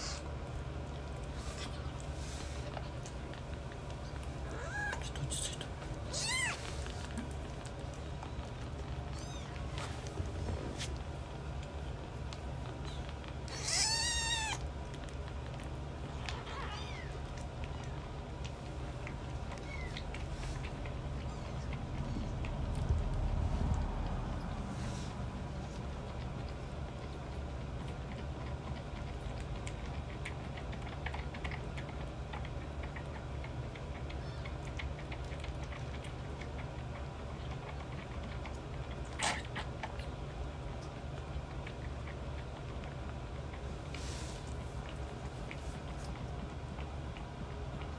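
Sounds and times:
kitten suckling from a bottle: 0.0s - 47.9s
steady low hum: 0.0s - 47.9s
kitten mewing: 4.4s - 6.7s, 9.0s - 9.8s, 12.8s - 14.7s.

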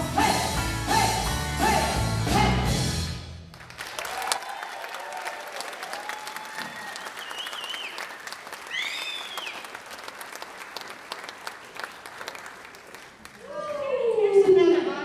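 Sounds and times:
audience applauding: 3.5s - 13.9s
high cheers: 3.9s - 9.8s, 13.4s - 14.1s.

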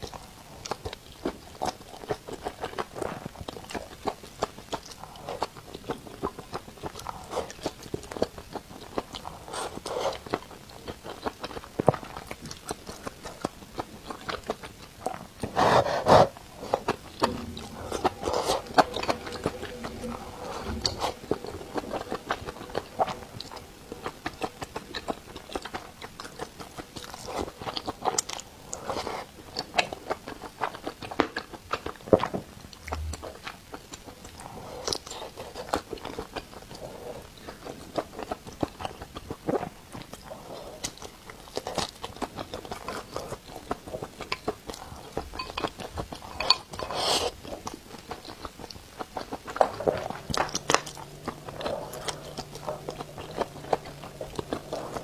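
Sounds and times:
person chewing crunchy food: 0.0s - 55.0s.

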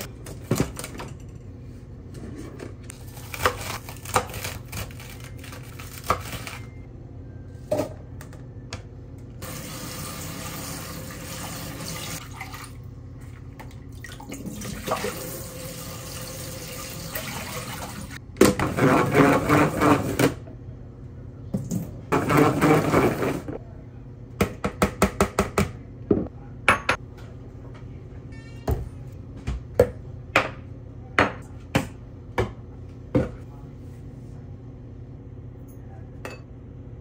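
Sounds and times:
tap water running: 9.4s - 18.2s.

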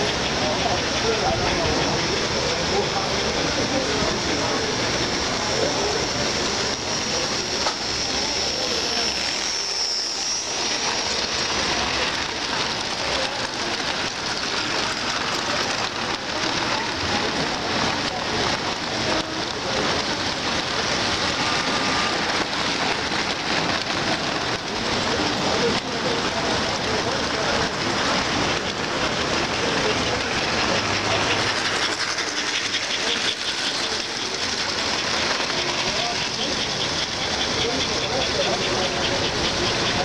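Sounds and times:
model train wheels on rails: 0.0s - 40.0s.

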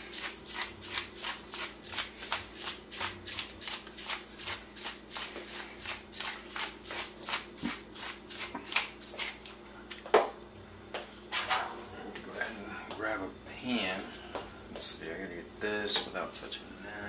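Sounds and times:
pepper mill grinding: 0.0s - 9.6s.

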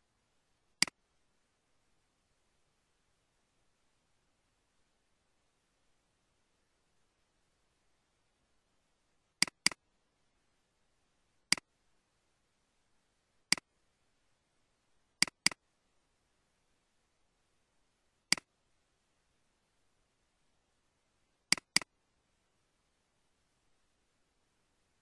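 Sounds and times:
computer mouse clicking: 9.4s - 9.8s, 11.5s - 11.7s, 13.5s - 13.7s, 15.2s - 15.6s, 21.5s - 21.9s.

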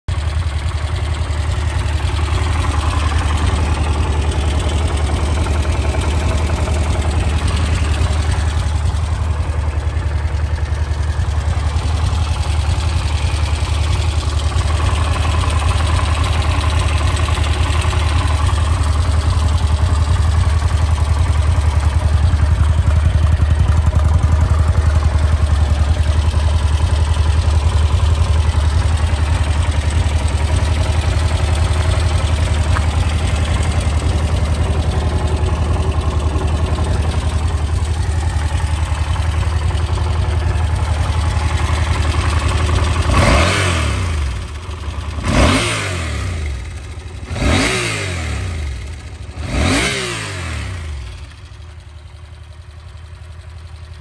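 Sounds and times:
motorcycle engine idling: 0.0s - 54.0s
motorcycle throttle blips: 26.0s - 43.7s.

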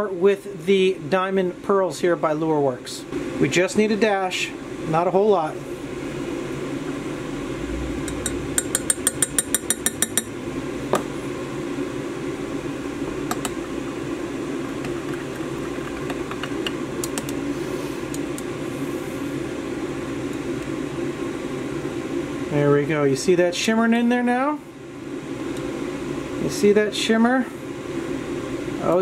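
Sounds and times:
fan hum: 0.0s - 29.0s
spoon tapping glass cup: 8.1s - 10.3s.

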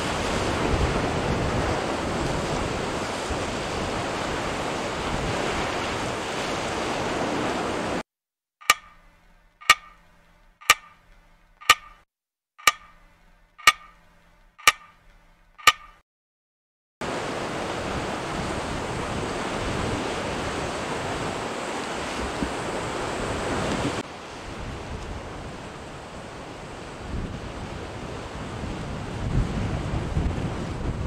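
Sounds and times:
sea surf: 0.0s - 8.0s, 17.0s - 31.0s
wind: 0.0s - 8.0s, 8.6s - 16.0s, 17.0s - 31.0s
sharp ticks with ringing tone: 8.6s - 16.0s.

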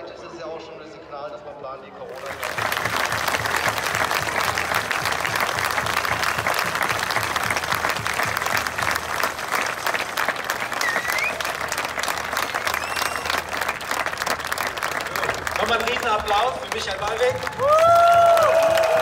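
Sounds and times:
crowd applauding: 2.1s - 19.0s
rising whistle: 10.8s - 11.5s, 12.7s - 13.4s.

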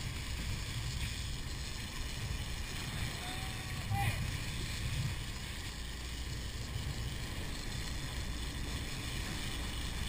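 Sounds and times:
boat engines rumbling: 0.0s - 10.0s
churning wake water: 0.0s - 10.0s.

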